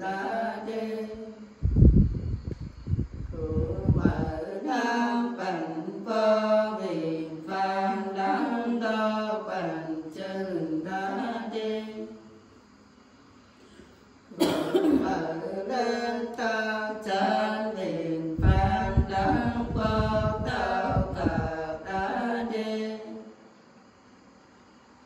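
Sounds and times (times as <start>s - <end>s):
women singing unaccompanied: 0.0s - 1.6s, 3.3s - 12.3s, 14.3s - 23.4s.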